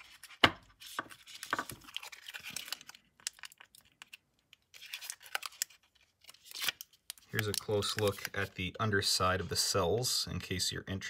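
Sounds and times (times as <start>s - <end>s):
hands crinkling and rustling: 0.0s - 8.7s.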